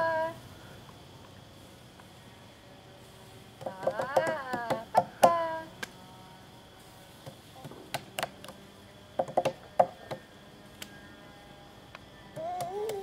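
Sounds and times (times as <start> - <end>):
hand claps and slaps: 7.9 - 8.6, 12.4 - 13.0.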